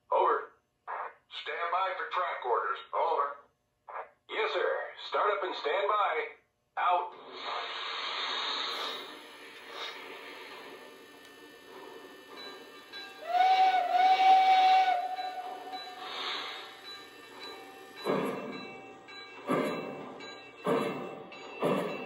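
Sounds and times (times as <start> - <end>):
steam hissing: 7.2 - 22.0
locomotive chuffing: 8.3 - 22.0
steam whistle: 8.7 - 18.6.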